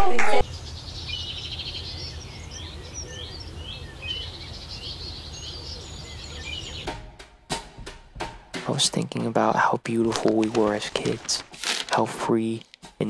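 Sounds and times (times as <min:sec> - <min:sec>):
small birds chirping: 0:00.4 - 0:07.0.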